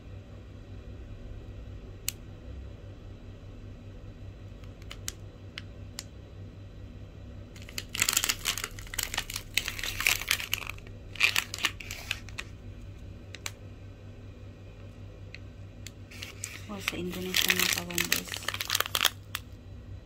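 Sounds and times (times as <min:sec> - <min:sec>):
low steady hum: 0:00.0 - 0:20.0
plastic packet crinkling: 0:07.6 - 0:12.5, 0:16.1 - 0:19.5.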